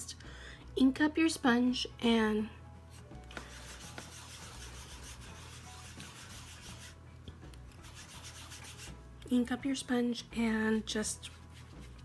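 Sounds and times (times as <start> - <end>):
sponge scuffing on ink pad: 2.9 - 7.0, 11.3 - 12.0.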